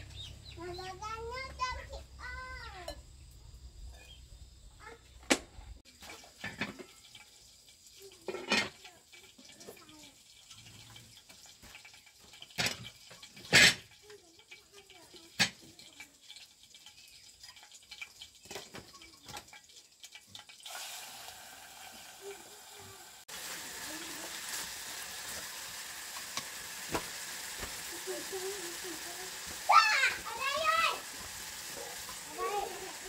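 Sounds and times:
pots or dishes knocking: 6.4s - 7.0s, 8.2s - 8.8s, 11.6s - 14.0s
steady hiss: 22.0s - 33.0s.

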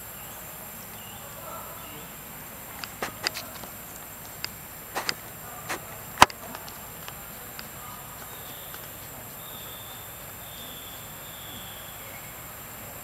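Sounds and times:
steady high hiss: 0.0s - 13.0s
faint ticks: 2.4s - 12.2s
sharp click: 4.4s - 6.8s.

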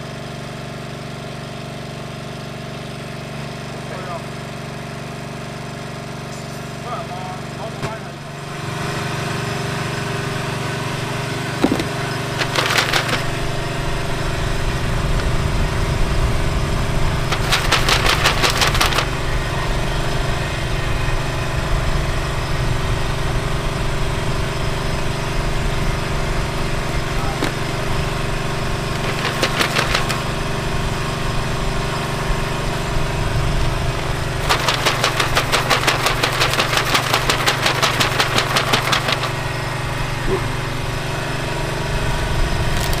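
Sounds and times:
motor humming: 6.3s - 43.0s
rapid ticking: 12.2s - 13.4s, 17.2s - 19.1s, 28.9s - 30.4s, 34.4s - 39.5s.

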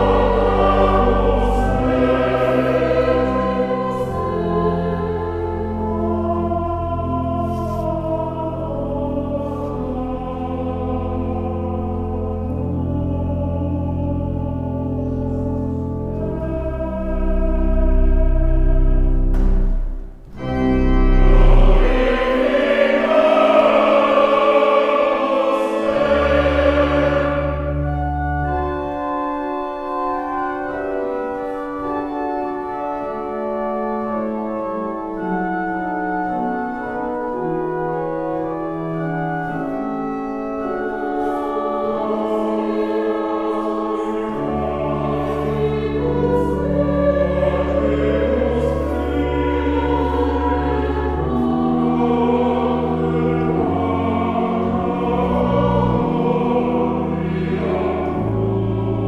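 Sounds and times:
mixed choir singing: 0.0s - 15.2s, 16.2s - 19.7s, 20.3s - 28.2s, 40.9s - 59.0s
organ accompaniment: 0.0s - 59.0s.

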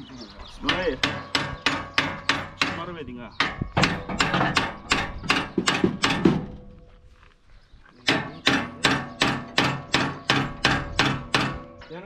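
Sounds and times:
hammer striking metal: 0.6s - 6.5s, 8.1s - 12.0s.

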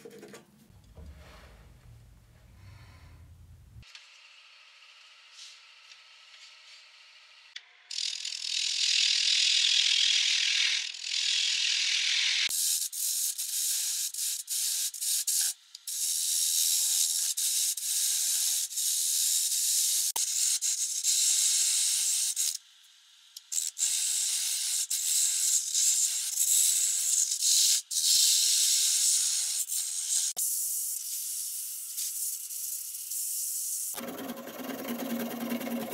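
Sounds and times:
lathe tool scraping wood: 34.0s - 35.9s.

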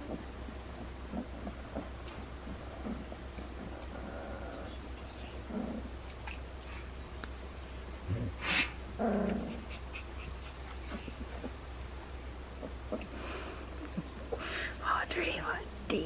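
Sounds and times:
puppies grunting: 0.0s - 6.9s, 8.0s - 14.8s
sharp puff of noise: 8.4s - 8.8s.

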